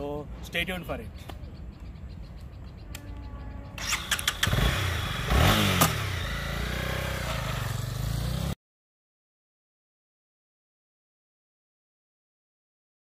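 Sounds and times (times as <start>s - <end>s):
motorcycle engine revving: 3.4s - 8.6s.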